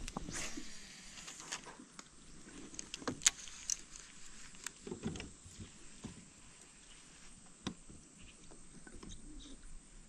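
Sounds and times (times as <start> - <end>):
rod and reel clicks and knocks: 2.6 - 5.7.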